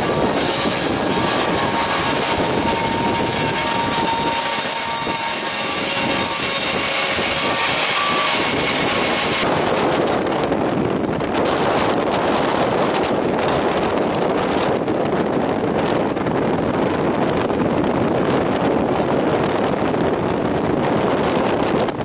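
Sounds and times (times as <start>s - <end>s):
steady high tone: 0.0s - 9.5s
tractor engine running: 0.0s - 9.6s
wind buffeting microphone: 0.0s - 22.0s.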